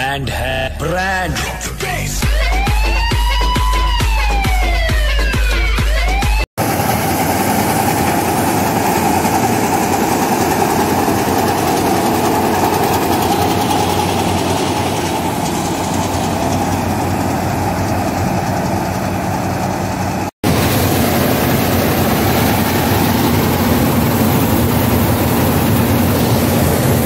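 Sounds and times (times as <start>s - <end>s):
combine harvester engine drone: 6.6s - 27.0s.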